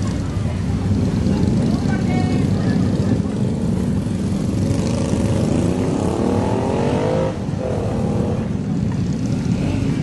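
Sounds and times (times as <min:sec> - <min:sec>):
motorcycle engine revving: 0:00.0 - 0:10.0
motorcycle engines running: 0:00.0 - 0:10.0.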